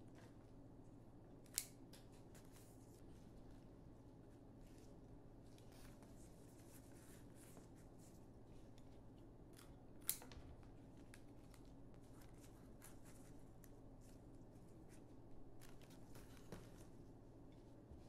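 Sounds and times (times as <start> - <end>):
scissors snipping stem: 1.5 - 1.8.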